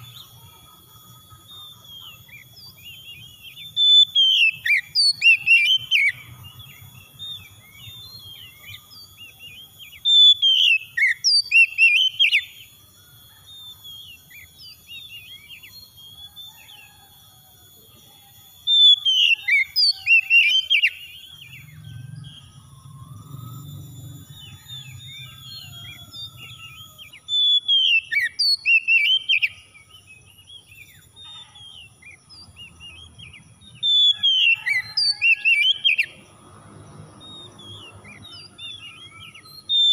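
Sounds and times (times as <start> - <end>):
bird singing whistled phrases: 0.0 - 17.1, 17.8 - 36.2, 37.2 - 39.9
soft bird chirps: 0.0 - 39.9.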